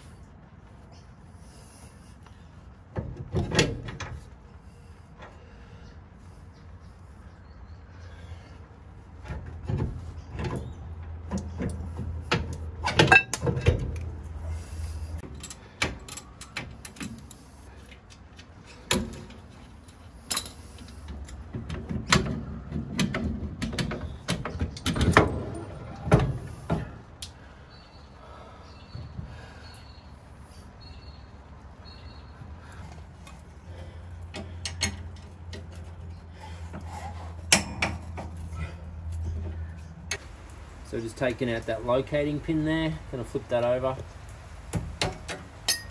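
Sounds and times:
metal knocks clanks and scraping: 0:02.9 - 0:04.4, 0:09.2 - 0:27.1, 0:33.0 - 0:40.3, 0:44.7 - 0:45.9.

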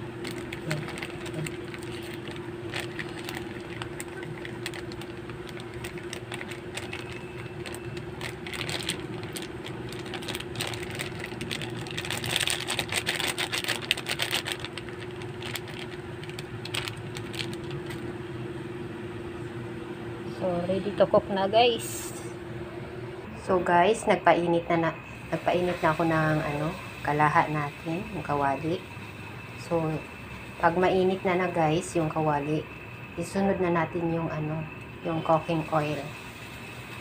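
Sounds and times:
plastic sachet crinkling: 0:00.1 - 0:18.0.

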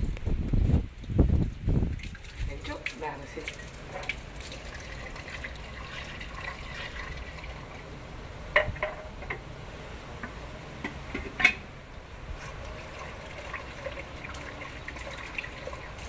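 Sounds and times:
water trickling: 0:00.9 - 0:08.7, 0:11.9 - 0:16.0.

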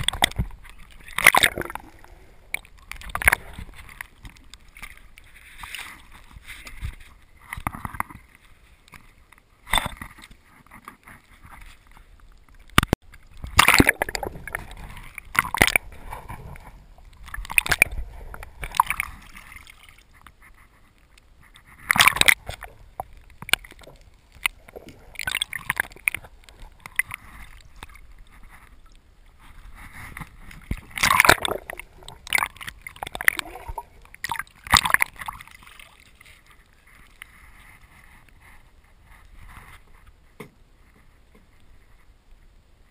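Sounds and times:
water sloshing underwater: 0:00.0 - 0:42.9.

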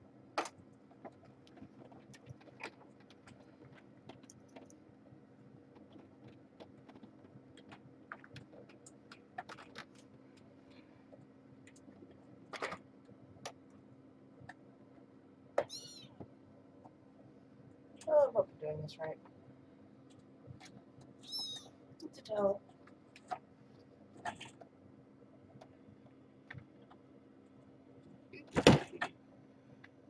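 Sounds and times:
steady low hum: 0:00.0 - 0:30.0
kittens clicking and tapping: 0:00.4 - 0:10.5.

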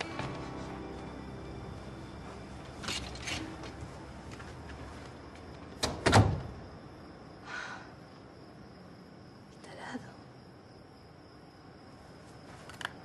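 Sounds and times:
door shutting with a thud: 0:05.8 - 0:06.6.

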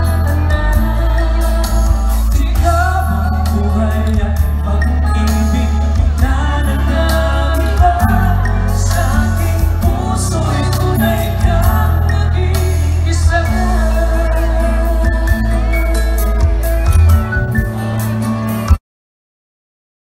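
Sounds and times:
live band playing: 0:00.0 - 0:18.8
person singing: 0:00.0 - 0:18.8.

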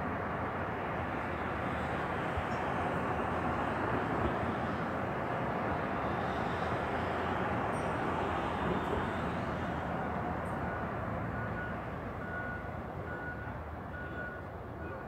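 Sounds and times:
road traffic rushing past: 0:00.0 - 0:15.0
distant vehicle backup alarm beeps: 0:06.0 - 0:15.0.

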